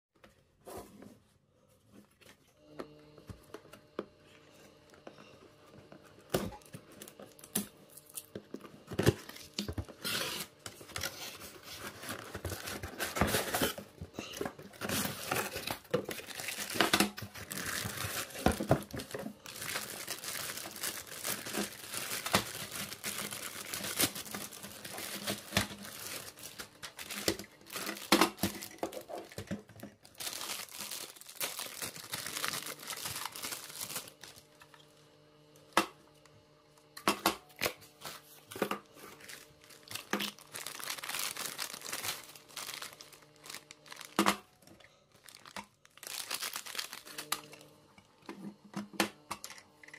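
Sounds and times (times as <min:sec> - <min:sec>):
plastic wrap crinkling and tearing: 0:06.4 - 0:34.7, 0:38.8 - 0:44.5, 0:45.1 - 0:47.6.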